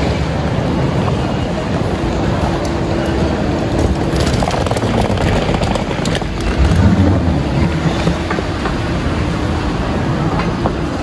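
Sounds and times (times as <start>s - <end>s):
moving walkway drive running: 0.0s - 11.0s
suitcase wheels rolling: 2.4s - 9.2s.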